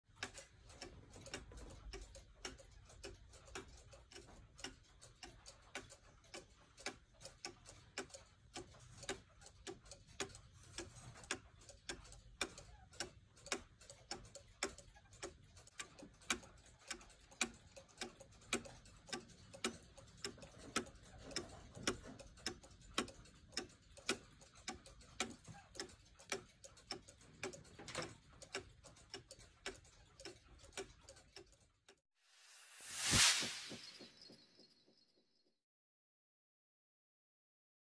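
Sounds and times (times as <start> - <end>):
clock ticking: 0.1 - 34.3.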